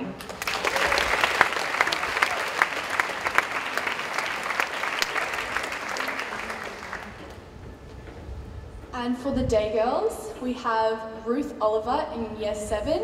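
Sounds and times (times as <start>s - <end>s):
audience applauding: 0.2s - 7.4s.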